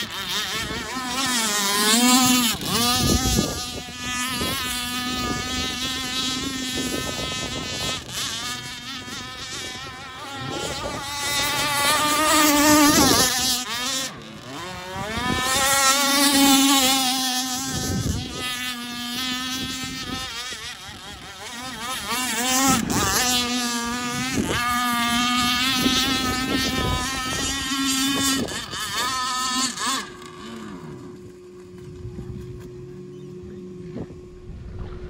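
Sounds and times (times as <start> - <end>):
model boat engine buzzing: 0.0 - 35.0.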